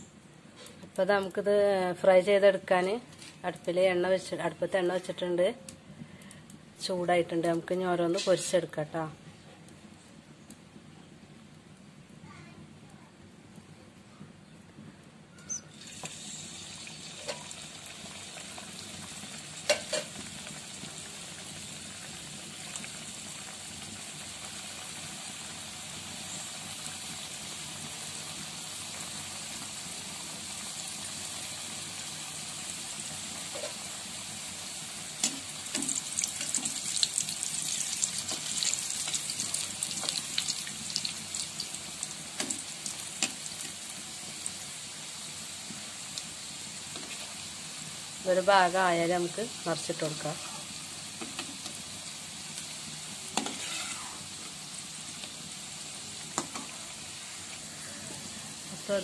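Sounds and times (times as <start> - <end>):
dough deep-frying in hot oil: 6.8 - 9.1, 15.5 - 59.0.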